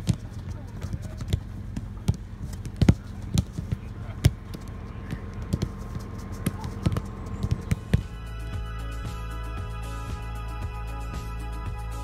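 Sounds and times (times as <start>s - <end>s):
boot kicking football thuds: 0.0s - 8.2s
steady low rumble: 0.0s - 12.0s.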